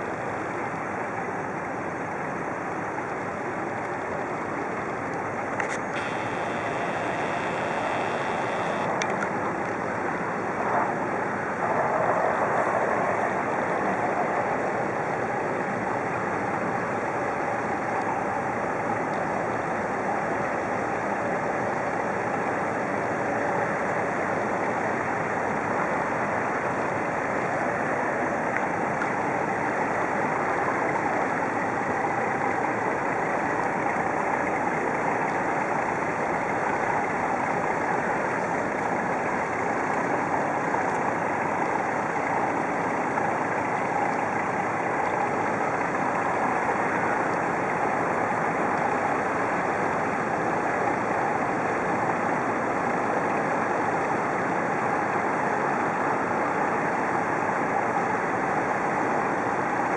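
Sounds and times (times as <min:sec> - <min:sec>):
propeller churning water: 0:00.0 - 0:59.9
diesel engine running: 0:06.0 - 0:08.9.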